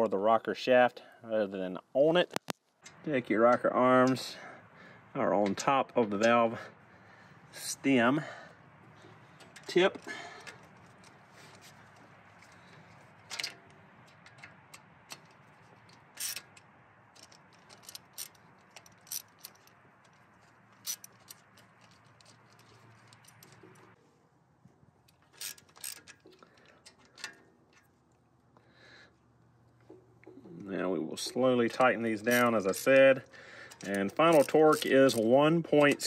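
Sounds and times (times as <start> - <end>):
socket ratchet clicking: 13.3 - 19.8, 20.8 - 23.9, 25.2 - 27.4, 31.7 - 36.0
metal clicks and taps: 13.3 - 24.0.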